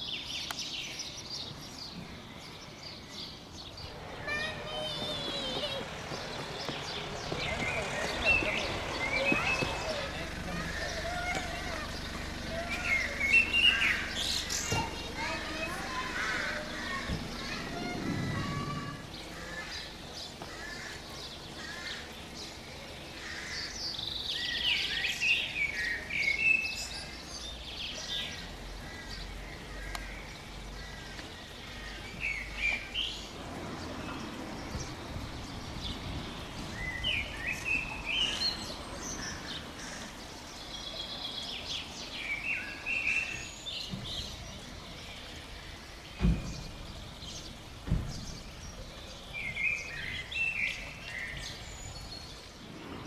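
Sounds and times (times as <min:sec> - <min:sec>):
songbirds chirping: 0:00.0 - 0:53.0
low background hum: 0:03.9 - 0:23.6.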